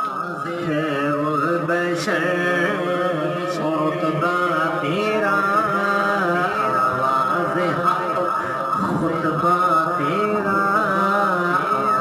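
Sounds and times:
person chanting melody: 0:00.0 - 0:12.0
low drone: 0:02.7 - 0:10.9.

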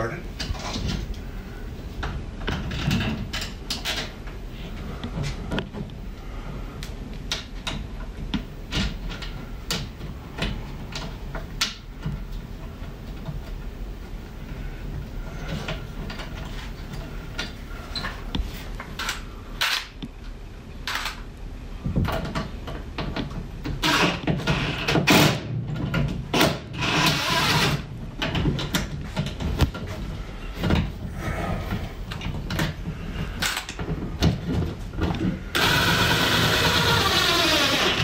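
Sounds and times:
cordless driver running: 0:35.6 - 0:38.0.

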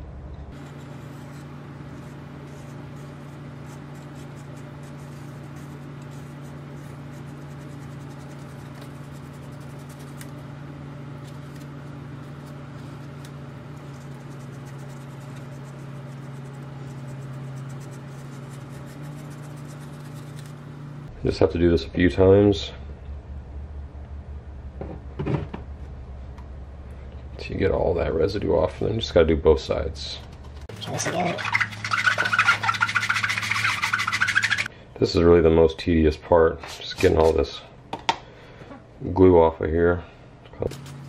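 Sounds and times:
steady low hum: 0:00.0 - 0:41.0
razor blade scraping glass: 0:30.6 - 0:34.7.

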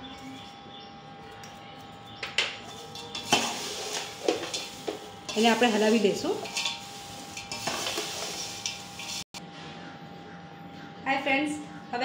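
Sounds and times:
dry flakes rustling: 0:02.6 - 0:09.4.

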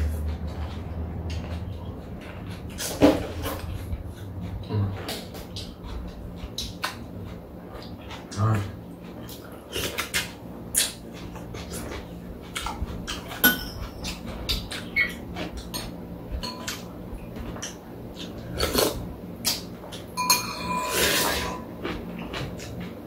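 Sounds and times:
utensils clinking on bowls: 0:13.3 - 0:16.9, 0:20.1 - 0:22.0.

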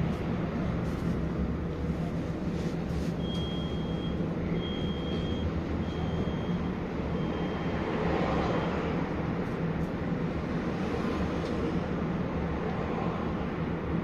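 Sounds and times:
tram drive hum: 0:00.0 - 0:14.0
high warning beeps: 0:03.2 - 0:07.8.

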